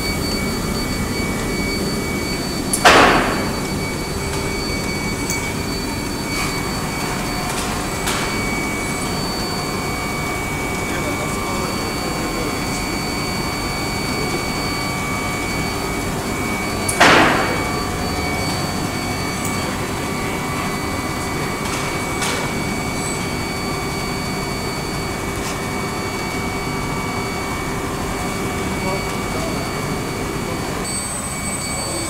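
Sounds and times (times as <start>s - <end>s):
factory machinery whining: 0.0s - 32.0s
sharp machine clack: 2.7s - 4.5s, 16.9s - 17.8s.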